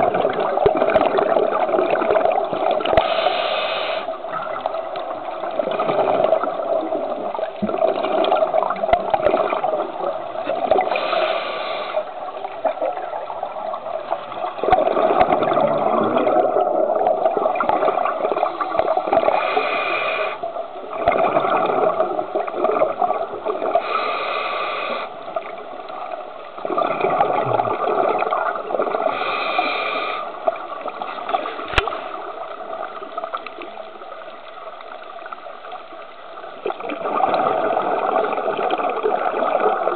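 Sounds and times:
bubbles gurgling underwater: 0:00.0 - 0:03.1, 0:04.1 - 0:11.2, 0:12.0 - 0:19.4, 0:20.6 - 0:23.9, 0:25.2 - 0:29.3, 0:30.4 - 0:39.9
hissing regulator breath: 0:03.0 - 0:04.2, 0:10.9 - 0:12.2, 0:19.3 - 0:20.4, 0:23.8 - 0:25.2, 0:29.1 - 0:30.4.

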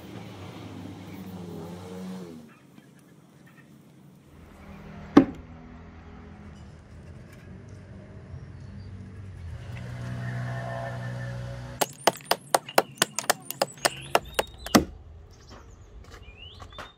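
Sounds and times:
axe blows biting into wood: 0:11.8 - 0:14.9.

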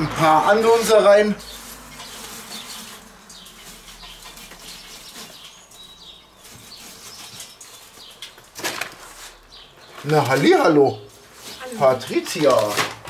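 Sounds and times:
birds chirping: 0:00.0 - 0:13.0
charcoal rustling and clinking: 0:00.0 - 0:13.0.

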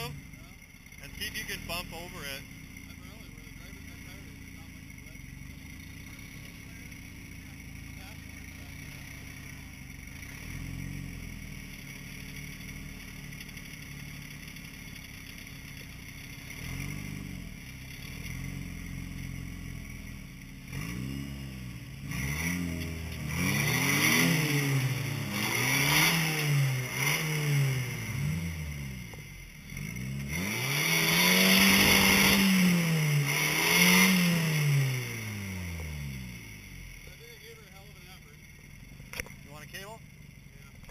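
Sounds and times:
truck engine idling and revving: 0:00.0 - 0:40.9.

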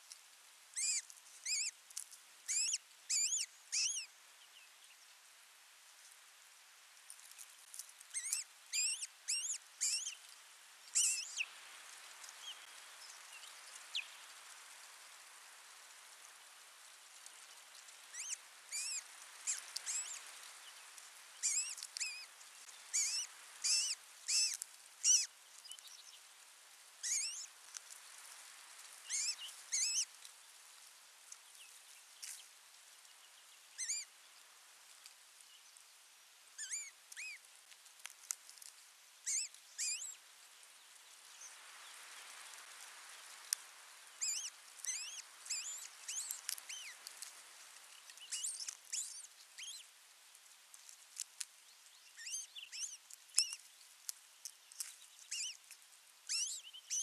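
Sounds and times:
osprey chirping: 0:00.8 - 0:01.7, 0:02.5 - 0:04.1, 0:08.1 - 0:10.2, 0:18.1 - 0:20.2, 0:21.4 - 0:22.3, 0:22.9 - 0:25.9, 0:27.0 - 0:27.5, 0:29.1 - 0:30.1, 0:33.8 - 0:34.1, 0:44.2 - 0:47.0, 0:48.1 - 0:49.8, 0:52.2 - 0:53.6, 0:54.8 - 0:55.6, 0:56.3 - 0:57.0.

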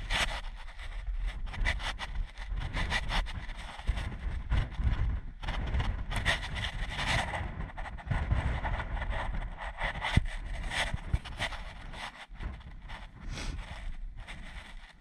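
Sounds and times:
wind buffeting microphone: 0:00.0 - 0:15.0
scuffing and rustling against rock: 0:10.0 - 0:15.0.

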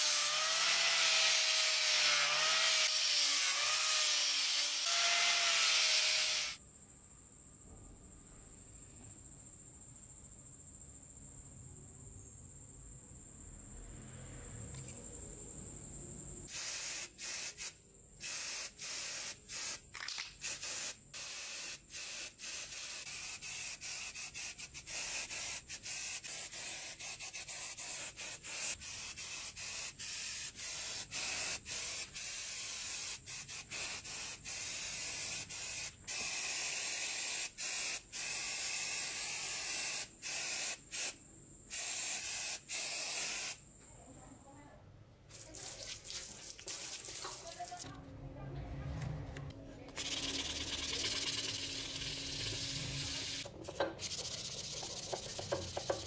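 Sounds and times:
spray-paint can hissing: 0:00.8 - 0:06.6, 0:16.5 - 0:43.6, 0:45.3 - 0:47.8, 0:50.0 - 0:56.0.

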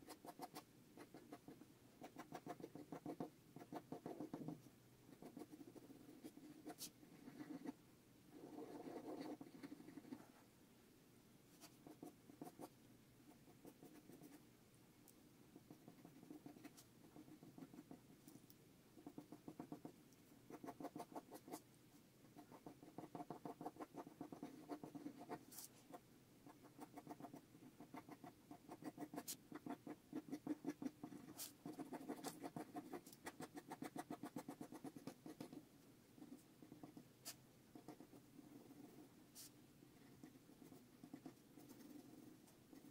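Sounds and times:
pencil scratching on paper: 0:00.0 - 0:10.5, 0:11.5 - 0:12.7, 0:13.3 - 0:14.4, 0:15.6 - 0:18.1, 0:19.0 - 0:21.6, 0:22.4 - 0:42.9.

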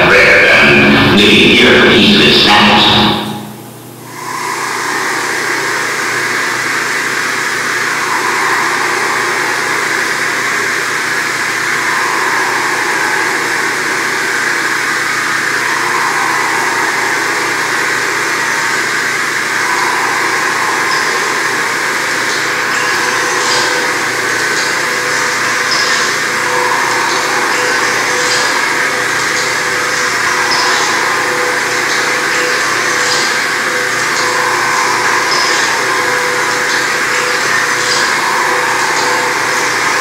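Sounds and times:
electronic noise drone: 0:00.0 - 0:40.0.

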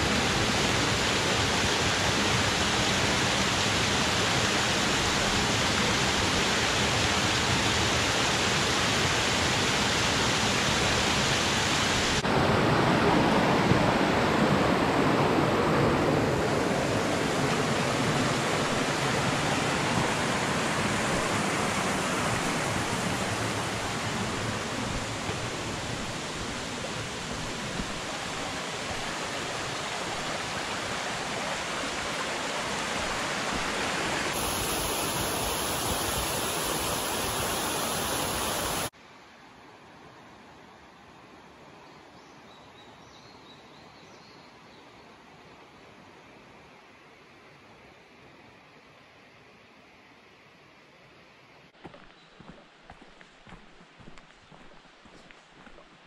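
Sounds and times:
small waterfall rushing: 0:00.0 - 0:39.0
stream running over rocks: 0:00.0 - 0:39.0.

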